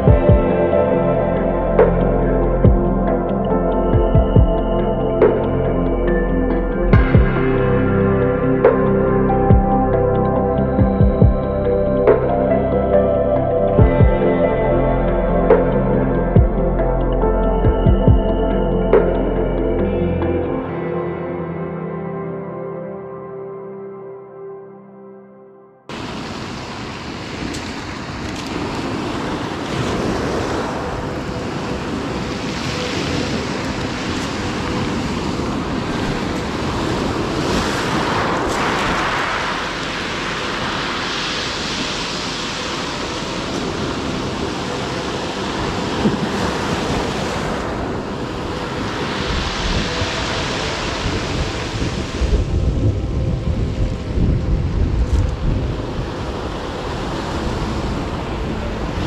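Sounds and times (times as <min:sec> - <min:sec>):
surf on pebble beach: 0:25.9 - 0:59.0
wind buffeting microphone: 0:26.0 - 0:59.0.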